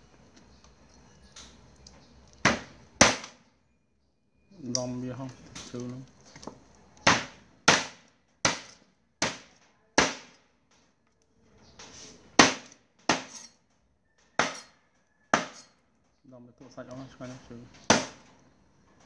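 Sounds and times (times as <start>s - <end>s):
knife chopping on wooden block: 2.4s - 3.3s, 7.0s - 10.3s, 12.4s - 13.5s, 14.4s - 14.7s, 15.3s - 15.7s, 17.9s - 18.2s.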